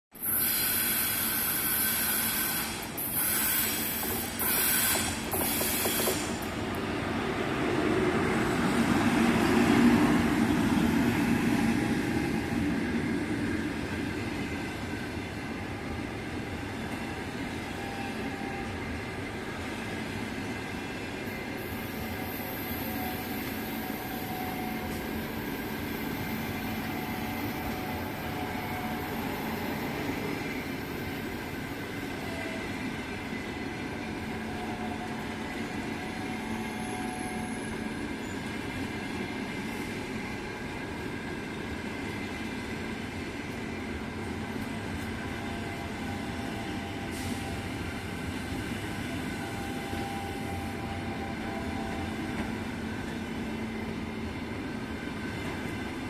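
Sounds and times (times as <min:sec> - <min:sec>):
high hiss: 0:00.2 - 0:06.5
train wheels rolling on track: 0:00.2 - 0:56.0.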